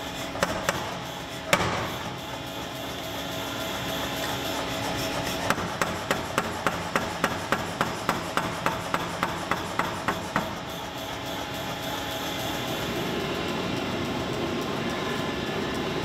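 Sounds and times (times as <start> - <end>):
power hammer striking hot steel: 0.0 - 4.6, 5.2 - 10.8.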